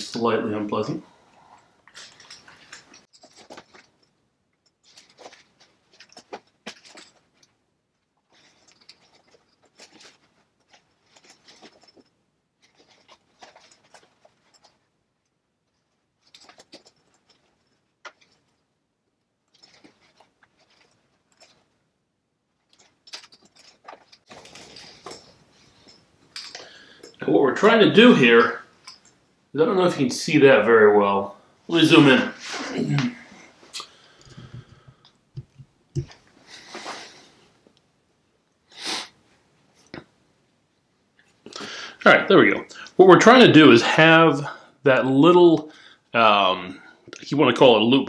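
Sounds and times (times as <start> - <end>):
canvas bag rustling and scraping: 22.7 - 26.1.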